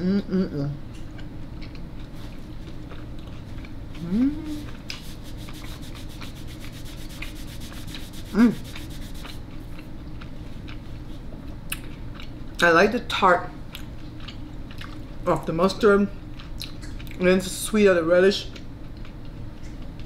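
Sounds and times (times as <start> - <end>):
person humming: 4.0 - 9.3
napkin rubbing over fingers: 4.5 - 9.4.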